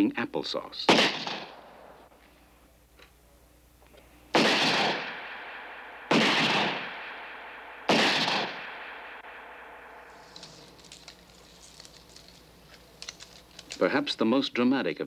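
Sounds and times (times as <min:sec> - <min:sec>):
rifle gunshots: 0:00.9 - 0:02.1, 0:04.3 - 0:10.1.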